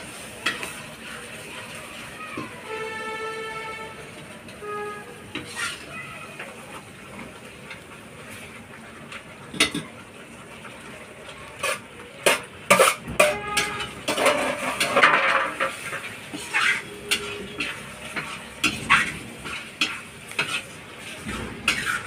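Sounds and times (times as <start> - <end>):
metal spoon scraping metal pan: 4.6 - 5.9, 11.6 - 22.0.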